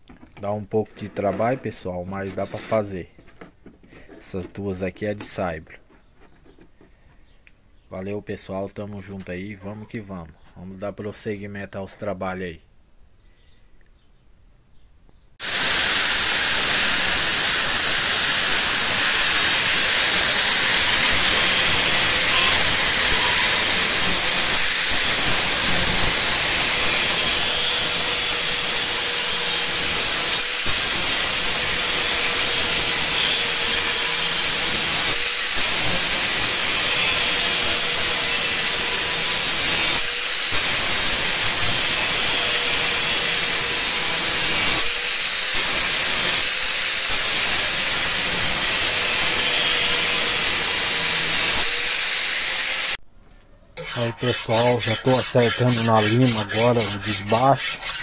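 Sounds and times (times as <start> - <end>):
angle grinder grinding steel: 15.4 - 53.0, 53.8 - 58.0.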